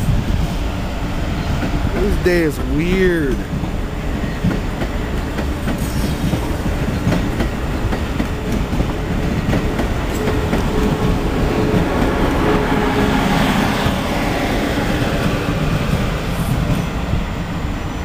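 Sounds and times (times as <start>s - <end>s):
train wheels rumbling on rail: 0.0s - 18.0s.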